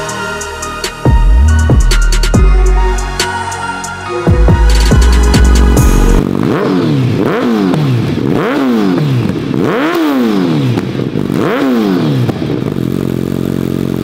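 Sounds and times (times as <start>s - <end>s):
motorcycle engine revving: 4.1s - 14.0s.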